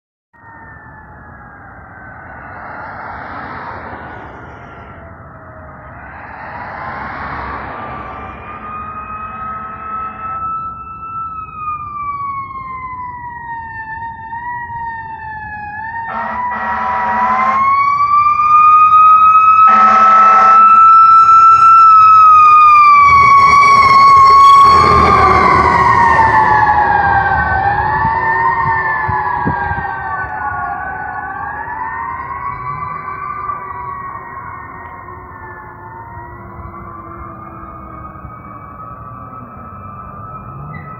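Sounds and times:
engine and road noise: 0.3s - 40.9s
wailing siren: 0.4s - 40.9s
air horn blasts: 9.2s - 10.4s, 16.1s - 17.7s, 19.6s - 20.8s.

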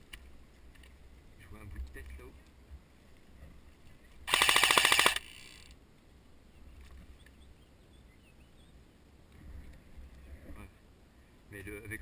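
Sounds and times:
airsoft rifle full-auto burst: 4.3s - 5.7s.

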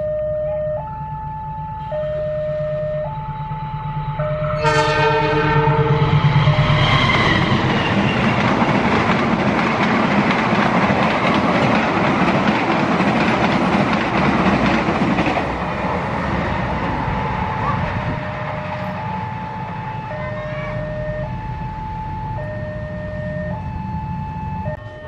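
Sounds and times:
locomotive engine: 0.0s - 25.0s
train wheels clattering over rails: 5.8s - 19.1s.

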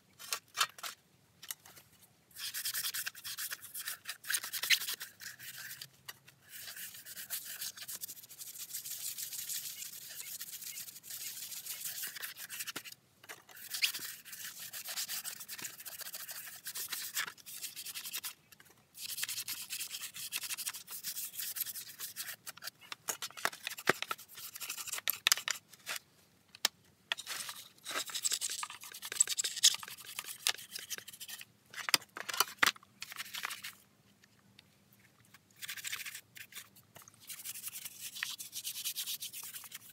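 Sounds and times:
stiff brush scrubbing plastic: 13.5s - 18.4s.

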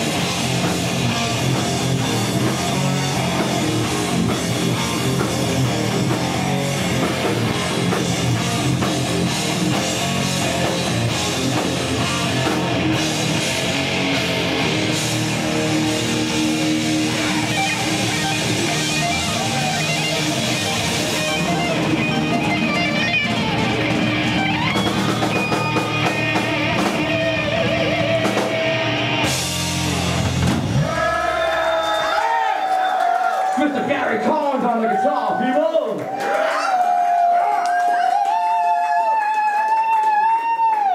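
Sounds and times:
electric guitar: 0.0s - 31.0s
live rock band playing: 0.0s - 31.4s.

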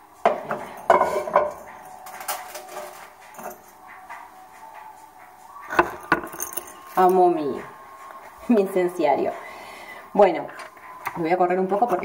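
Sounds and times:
incense burner clinks and knocks: 0.3s - 3.7s, 5.7s - 7.1s.

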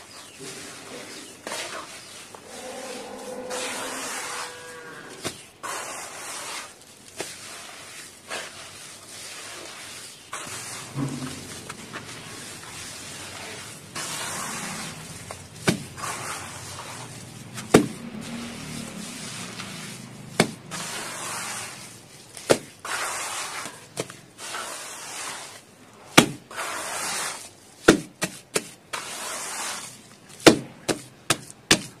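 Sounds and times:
wet squelching of mud paste: 5.1s - 25.5s.

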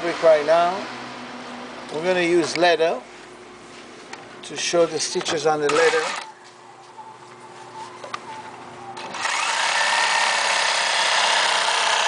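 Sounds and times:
sewing machine whirring: 9.1s - 12.0s.

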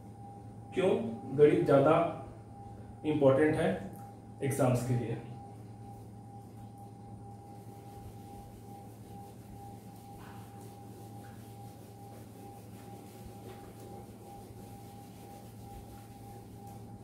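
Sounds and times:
electrical hum with thin whine: 0.0s - 17.0s
eraser rubbing whiteboard: 7.5s - 17.0s.

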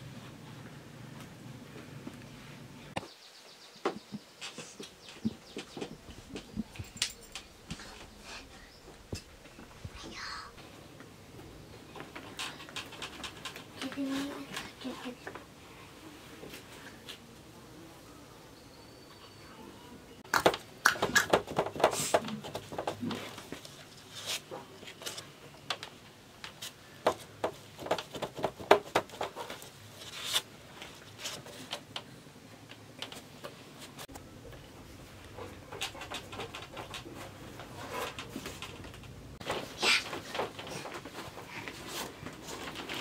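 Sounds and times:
dough taps and scrapes: 26.4s - 29.7s.

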